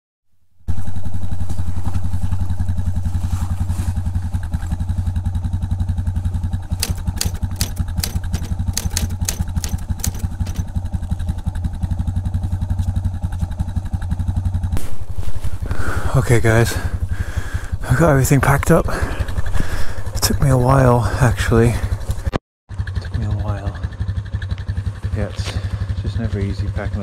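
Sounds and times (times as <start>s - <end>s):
motorcycle engine idling: 0.8s - 14.8s, 15.6s - 27.0s
sharp clicks: 6.8s - 10.7s.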